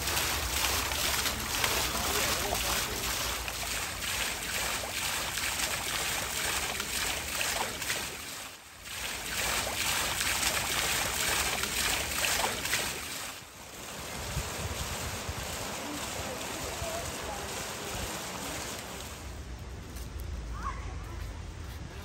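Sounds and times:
bowl being rubbed and rinsed: 0:00.0 - 0:13.1
stream running over stones: 0:00.0 - 0:21.0.

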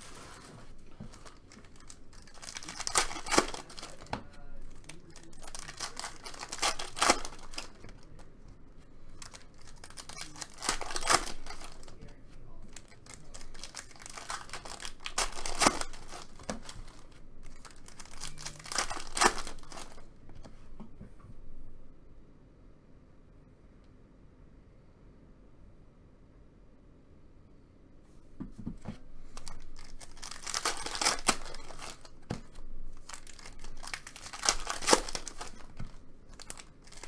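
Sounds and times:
cards flipped through by hand: 0:00.0 - 0:08.3, 0:08.9 - 0:12.0, 0:12.7 - 0:20.6, 0:28.8 - 0:37.0
card wrappers crinkling and tearing: 0:00.0 - 0:20.1, 0:29.2 - 0:37.0.

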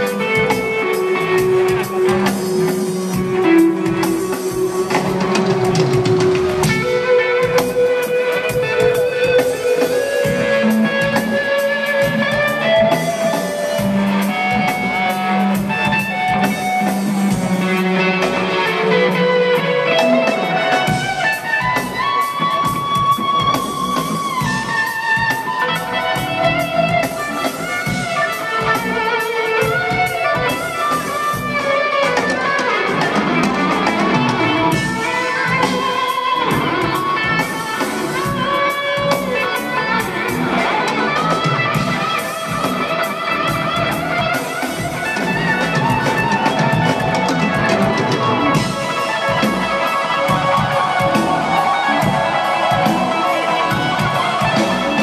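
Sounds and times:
live electric guitar lead: 0:00.0 - 0:55.0.

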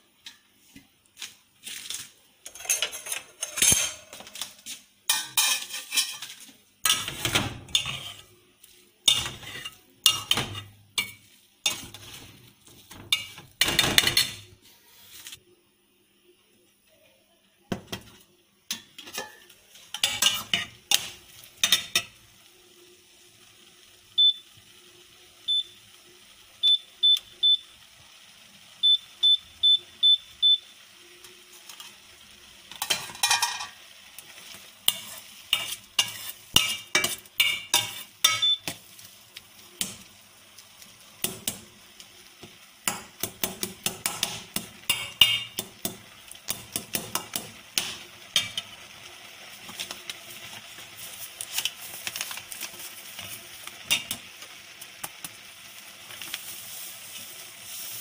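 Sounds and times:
spoon scraping steel pan: 0:05.1 - 0:08.4, 0:09.0 - 0:15.4, 0:18.7 - 0:22.1, 0:34.9 - 0:38.8.

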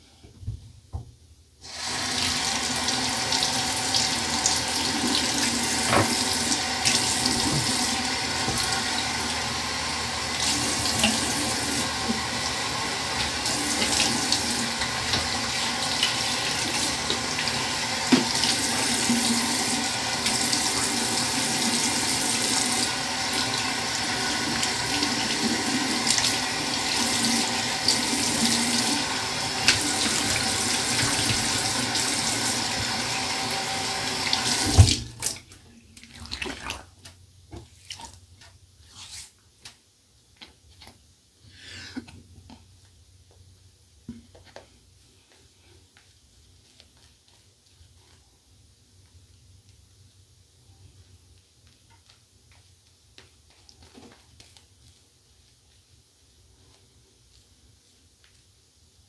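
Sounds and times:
tap water running into sink: 0:01.7 - 0:09.6, 0:10.2 - 0:36.8
tap shutting off knock: 0:05.8 - 0:06.2.

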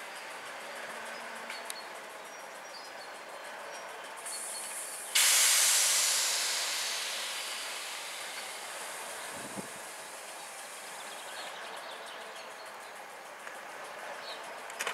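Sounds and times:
diesel train running slowly: 0:00.0 - 0:14.9
air brake hiss: 0:04.2 - 0:11.8.

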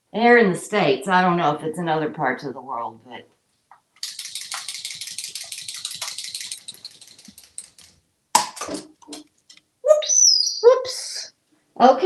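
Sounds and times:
fast clicking rattle: 0:04.0 - 0:08.0
parrot squawk: 0:09.9 - 0:10.7
parrot whistling: 0:09.9 - 0:10.7.

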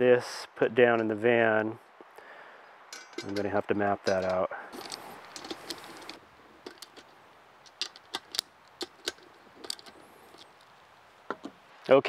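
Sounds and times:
small metal parts clicking: 0:02.9 - 0:03.5, 0:04.1 - 0:10.7.

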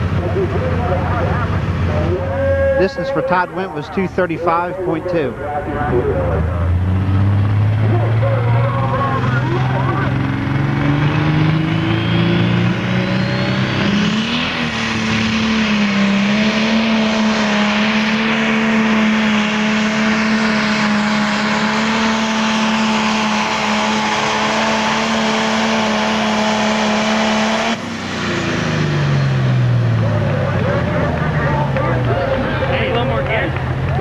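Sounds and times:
diesel engine at full throttle: 0:00.0 - 0:34.0
turbo whistle: 0:02.2 - 0:03.4.

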